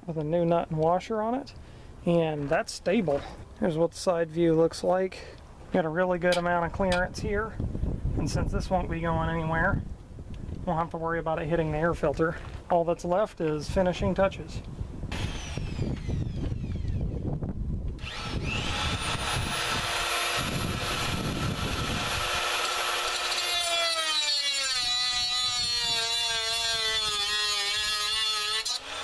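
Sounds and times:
cutoff tool cutting metal: 0:18.0 - 0:29.0.

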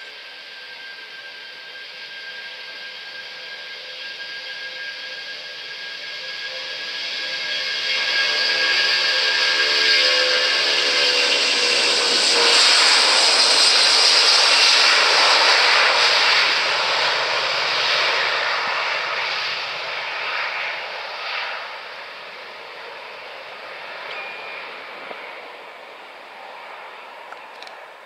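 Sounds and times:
jet engines at takeoff: 0:00.0 - 0:28.0.

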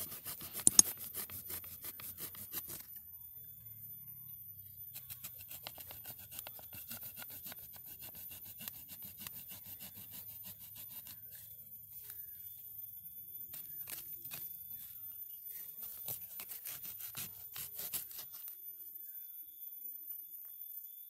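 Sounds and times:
hand saw rasping through root: 0:00.0 - 0:02.8, 0:05.4 - 0:11.4, 0:15.8 - 0:18.4.

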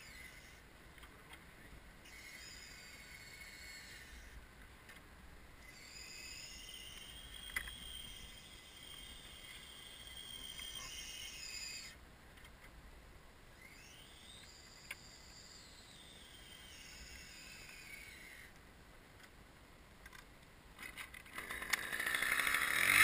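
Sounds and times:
hydraulic drive whine: 0:00.0 - 0:00.6, 0:02.0 - 0:04.4, 0:05.6 - 0:12.0, 0:13.5 - 0:18.6, 0:21.3 - 0:23.0.

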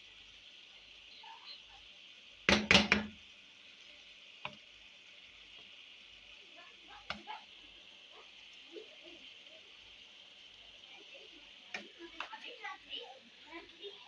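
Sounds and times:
chicken sizzling: 0:00.0 - 0:14.0
wooden spatula knocking on pan: 0:02.5 - 0:03.2, 0:07.0 - 0:07.3.

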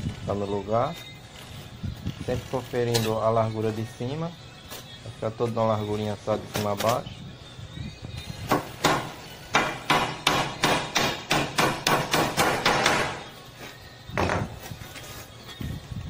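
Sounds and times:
hammer striking nails into wood: 0:08.5 - 0:13.2.

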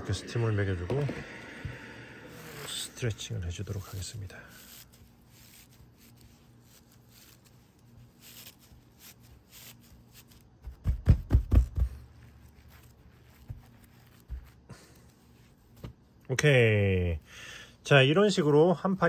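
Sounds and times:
hands rubbing raffia: 0:02.3 - 0:16.3
palms patting dull thumps: 0:10.6 - 0:12.2.

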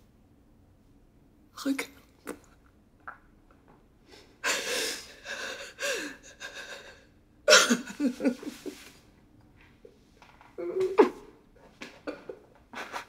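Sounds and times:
person sobbing: 0:04.4 - 0:08.9, 0:10.6 - 0:11.3.

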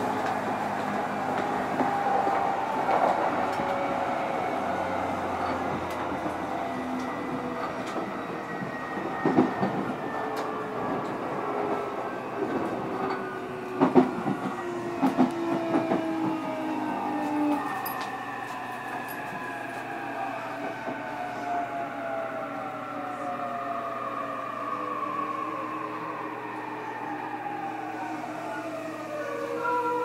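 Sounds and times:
rail running noise: 0:00.0 - 0:30.0.

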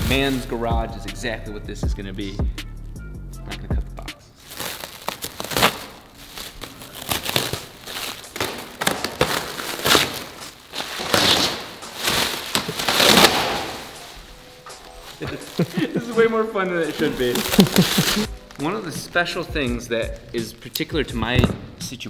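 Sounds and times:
stretch wrap crackling and tearing: 0:04.4 - 0:19.5.

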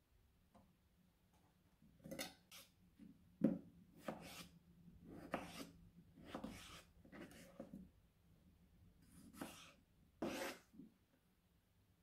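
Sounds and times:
knife slicing potatoes: 0:04.0 - 0:07.6, 0:09.1 - 0:10.7.

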